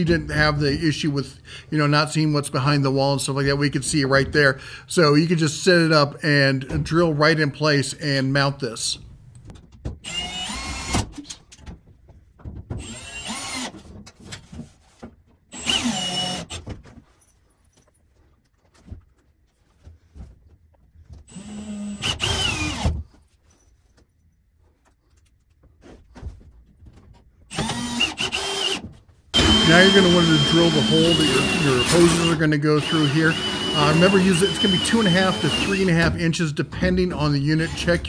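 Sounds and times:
cordless drill driving screws: 10.0s - 11.1s, 12.8s - 13.8s, 15.5s - 16.7s, 21.3s - 23.0s, 27.5s - 28.8s, 29.4s - 36.2s, 37.6s - 38.0s.

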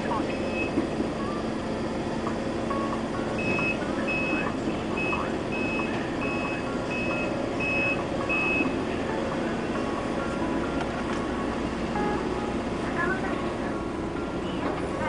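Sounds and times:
truck reversing alarm beeping: 0.0s - 9.1s
diesel construction machinery running: 0.0s - 15.0s.

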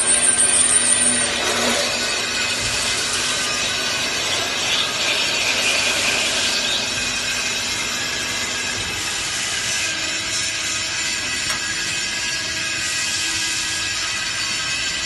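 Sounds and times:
drilling machine grinding metal: 0.0s - 15.0s.

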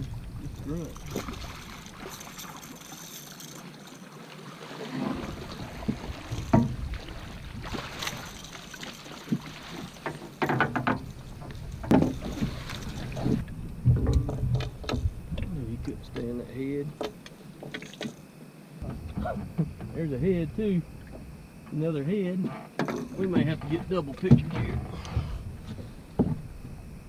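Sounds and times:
water splashing: 0.0s - 15.1s
knocks and bumps against boat: 4.8s - 16.3s, 18.8s - 21.8s, 22.4s - 27.0s.

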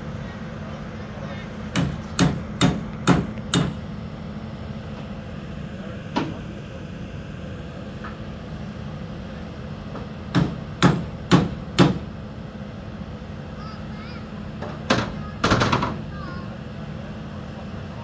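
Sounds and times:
hammer striking metal framework: 1.7s - 3.9s, 9.9s - 12.1s.

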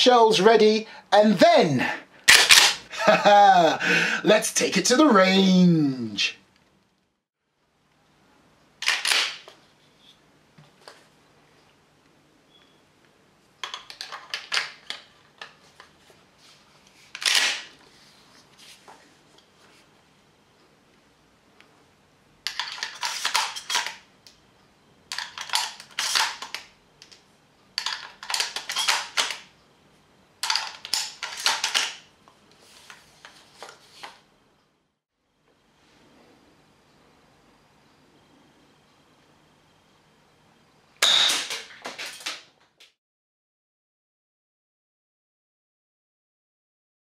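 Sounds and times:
shells clicking into shotgun magazine: 8.8s - 9.4s, 22.5s - 24.0s, 25.1s - 27.2s, 27.8s - 29.5s, 30.4s - 32.0s.

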